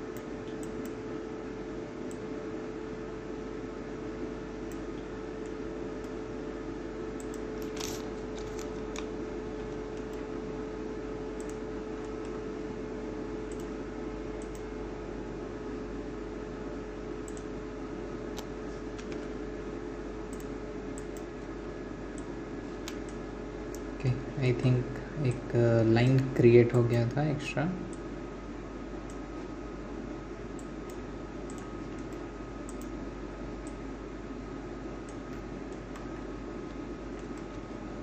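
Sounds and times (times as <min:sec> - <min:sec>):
electrical hum: 0:00.0 - 0:38.0
computer mouse clicks: 0:00.1 - 0:01.0, 0:04.6 - 0:06.2, 0:07.2 - 0:10.2, 0:11.4 - 0:12.4, 0:13.5 - 0:13.8, 0:14.4 - 0:14.7, 0:17.2 - 0:17.5, 0:18.3 - 0:19.3, 0:20.3 - 0:21.3, 0:22.2 - 0:23.9, 0:30.6 - 0:33.0, 0:35.0 - 0:37.7.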